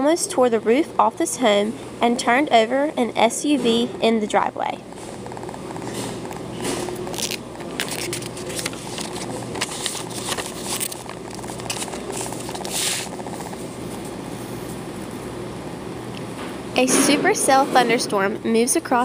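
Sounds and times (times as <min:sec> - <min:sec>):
steady low hum: 0:00.0 - 0:19.0
book pages rustling: 0:05.3 - 0:14.1.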